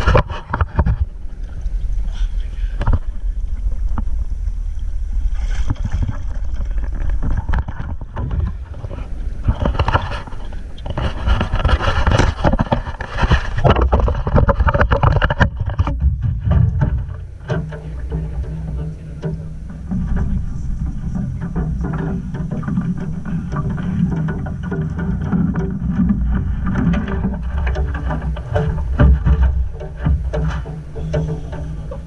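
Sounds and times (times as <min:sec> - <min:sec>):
river water splashing: 0:00.0 - 0:32.0
wind on microphone: 0:00.0 - 0:32.0
sharp knocks: 0:10.8 - 0:32.0.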